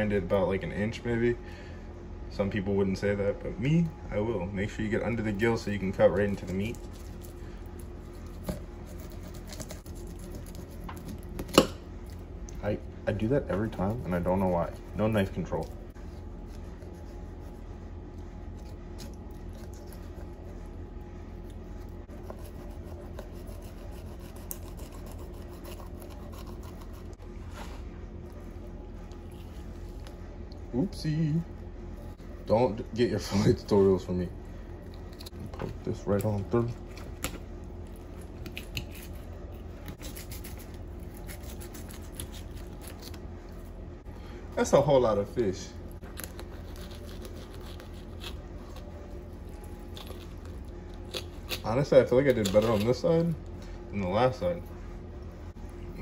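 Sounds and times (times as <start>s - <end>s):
steady low hum: 0.0s - 56.0s
knife scratching through fish: 6.7s - 11.6s, 22.1s - 27.2s, 39.9s - 43.2s, 46.2s - 48.9s.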